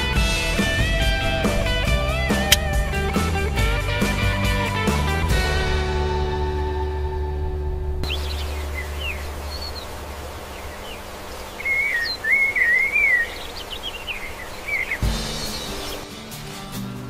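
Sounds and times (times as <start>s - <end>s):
low steady rumble: 5.5s - 12.3s
songbird chirping: 8.0s - 16.2s.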